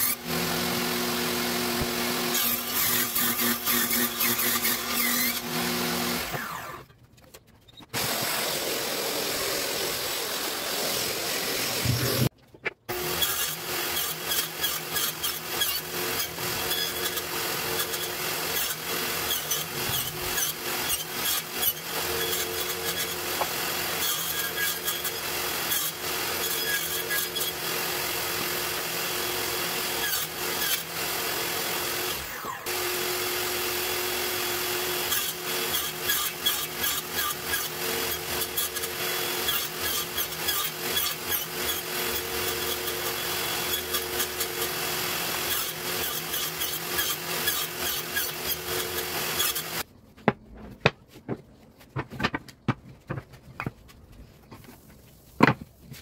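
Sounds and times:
table saw cutting wood: 0.0s - 6.9s, 7.9s - 12.3s, 12.9s - 49.9s
boards knocking and clattering: 50.2s - 54.7s, 55.4s - 55.8s.

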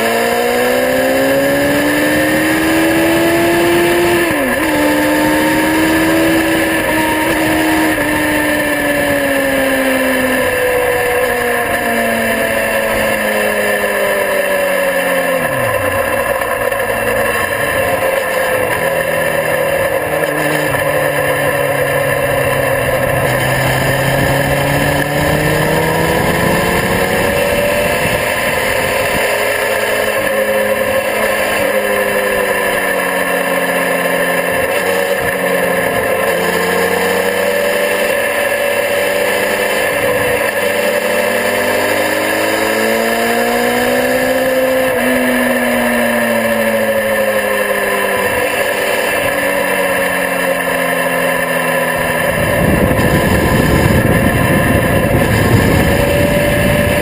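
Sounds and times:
motorcycle engine revving: 0.0s - 57.0s
wind rushing over microphone: 22.1s - 29.8s, 52.2s - 57.0s.

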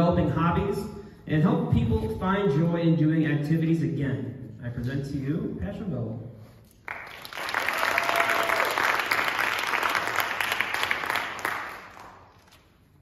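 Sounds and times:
audience applauding: 6.9s - 12.6s.

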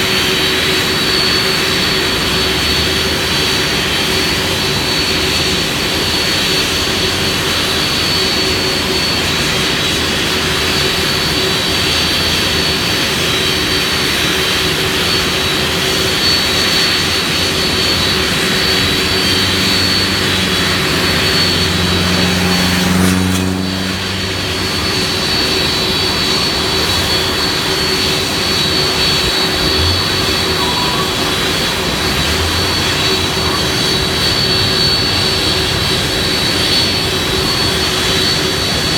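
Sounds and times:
jet engines rumbling and whining: 0.0s - 38.9s
low droning hum: 9.4s - 38.9s.

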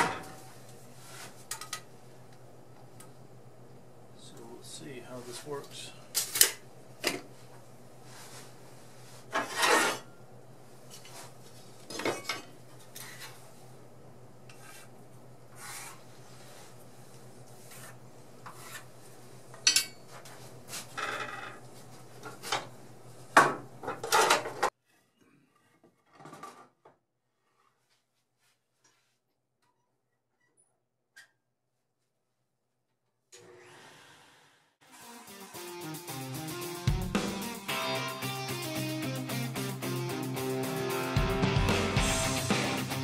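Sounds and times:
wood scraping across metal table: 9.2s - 10.1s, 15.5s - 16.0s.

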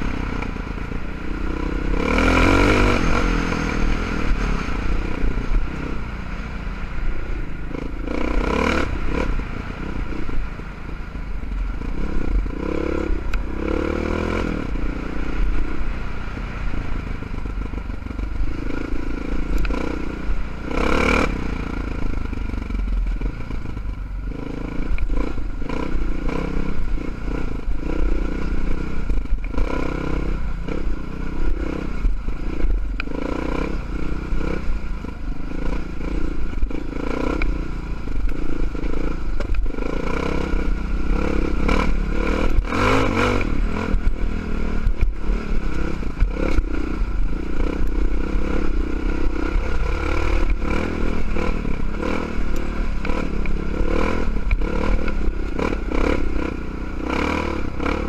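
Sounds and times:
motorcycle engine running: 0.0s - 58.0s
loud rushing noise bursts: 0.8s - 10.8s.

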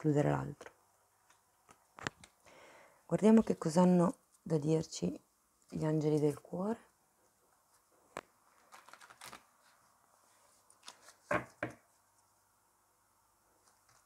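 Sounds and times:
cards shuffled by hand: 8.2s - 9.8s, 10.6s - 11.6s, 13.6s - 14.0s.

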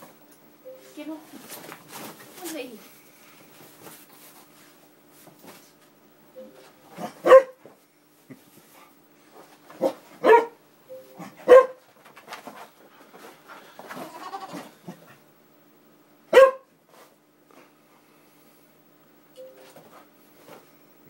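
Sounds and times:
dog barking sharply: 7.0s - 7.6s, 9.8s - 10.6s, 11.4s - 11.8s, 16.3s - 16.7s.

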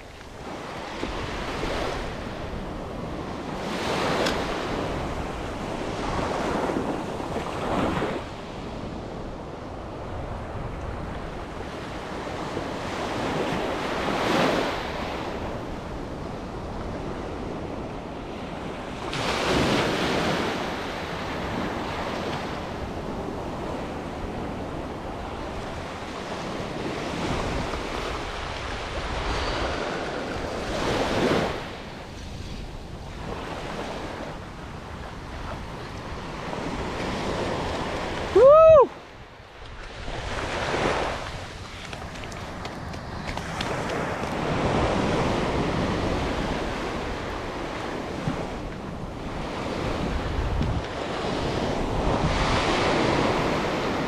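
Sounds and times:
small waves breaking on sand: 0.0s - 54.0s
wind on microphone: 0.0s - 54.0s
surf: 18.8s - 54.0s.

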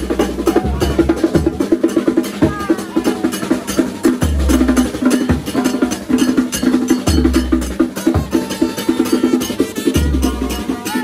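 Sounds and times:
fast drumming: 0.0s - 11.0s
brass band riff: 7.6s - 11.0s.

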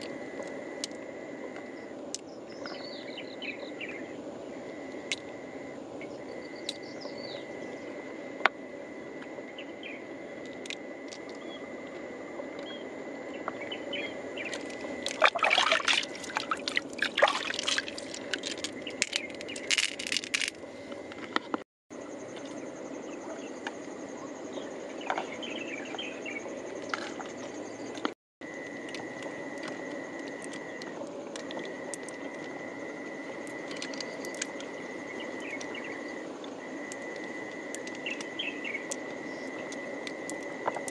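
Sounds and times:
water splashing: 14.6s - 19.1s.

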